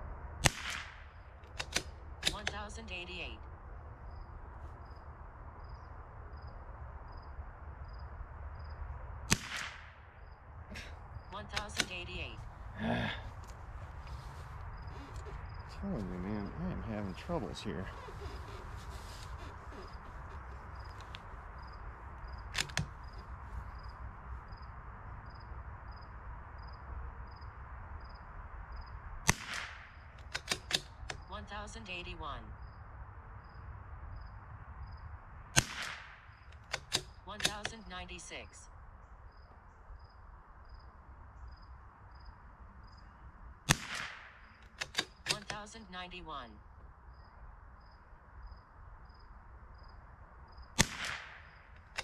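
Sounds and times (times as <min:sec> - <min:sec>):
low outdoor rumble: 0:00.0 - 0:52.0
rifle shot: 0:00.4 - 0:02.4, 0:09.3 - 0:10.0, 0:29.2 - 0:31.0, 0:35.6 - 0:37.1, 0:43.7 - 0:45.4, 0:50.8 - 0:52.0
cricket chirping: 0:00.9 - 0:43.6, 0:44.2 - 0:52.0
short clicks: 0:01.4 - 0:02.7, 0:11.4 - 0:12.0, 0:22.5 - 0:22.9, 0:30.2 - 0:31.2, 0:36.5 - 0:37.8, 0:44.6 - 0:45.7.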